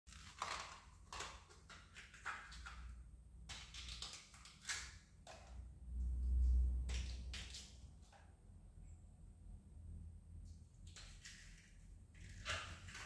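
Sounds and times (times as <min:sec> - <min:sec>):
scraping radish by hand: 0:11.2 - 0:13.0.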